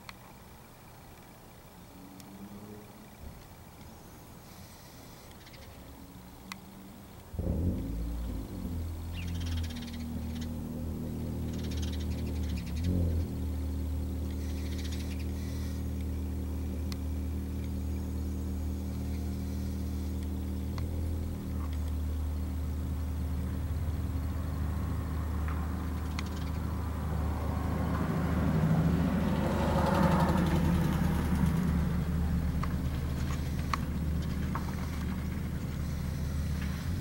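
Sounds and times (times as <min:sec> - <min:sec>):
car engine humming: 0:00.8 - 0:37.0
faint ticks: 0:06.4 - 0:07.9, 0:14.2 - 0:16.2, 0:16.8 - 0:17.8, 0:18.9 - 0:22.0, 0:25.4 - 0:26.7.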